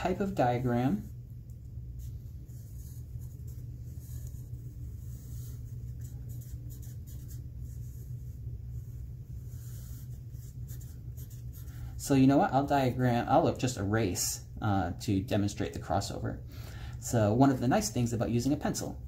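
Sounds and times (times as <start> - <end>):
steady low hum: 0.0 - 19.0
pencil scratching on paper: 1.9 - 11.9.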